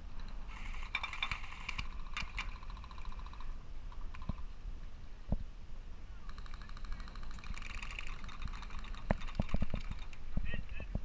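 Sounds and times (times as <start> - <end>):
airsoft rifle full-auto burst: 0.5 - 3.5.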